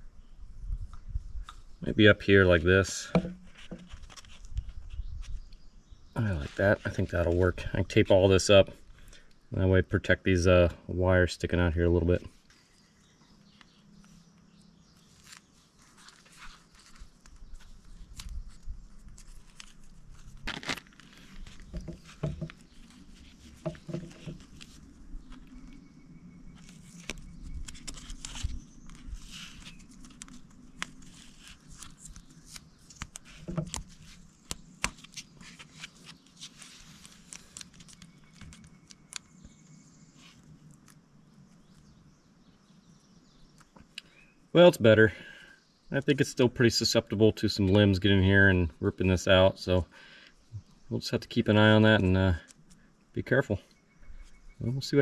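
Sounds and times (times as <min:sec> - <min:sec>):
tape tearing and crackling: 0:15.0 - 0:25.6, 0:26.6 - 0:39.4
handling rustles: 0:15.1 - 0:25.8.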